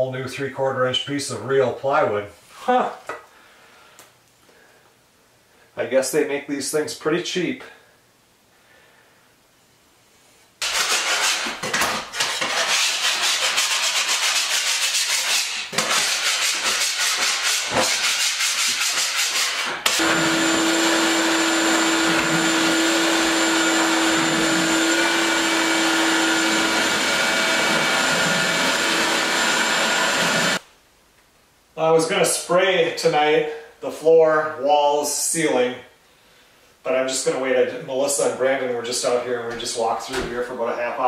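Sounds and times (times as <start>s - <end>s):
rapid rasping scraping: 10.6s - 19.9s
shop vacuum humming: 19.8s - 30.6s.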